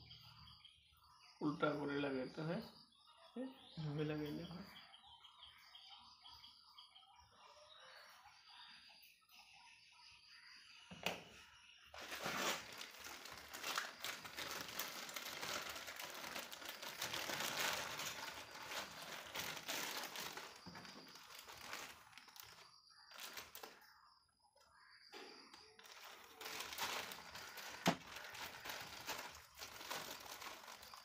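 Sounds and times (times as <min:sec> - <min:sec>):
plastic bag crinkling: 0:12.0 - 0:23.8, 0:25.8 - 0:31.0.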